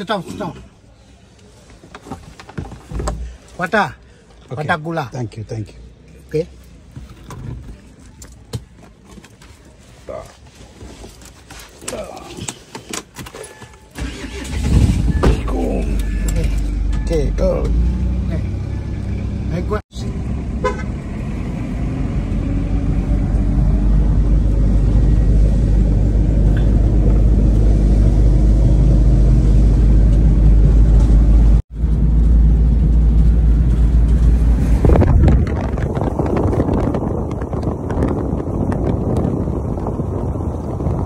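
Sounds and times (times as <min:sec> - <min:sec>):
engine and road noise inside van: 0:00.0 - 0:41.0
wind buffeting microphone: 0:34.0 - 0:41.0.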